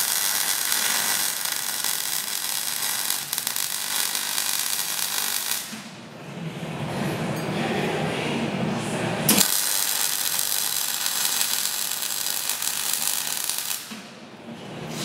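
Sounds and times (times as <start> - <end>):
welding arc crackling hiss: 0.0 - 5.8, 9.4 - 14.0.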